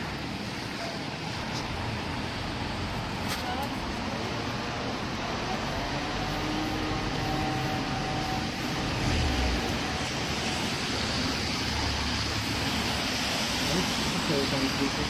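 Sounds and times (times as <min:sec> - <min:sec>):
tyres hissing on wet road: 0:00.0 - 0:15.0
vehicle engines rumbling: 0:00.0 - 0:15.0.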